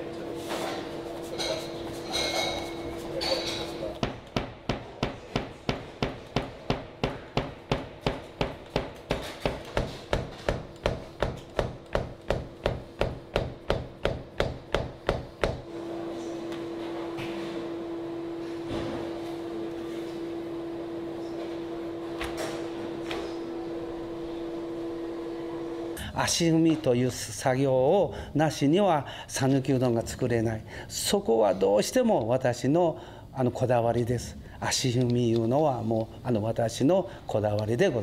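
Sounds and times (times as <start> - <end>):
knife chopping on wooden board: 4.0 - 15.6.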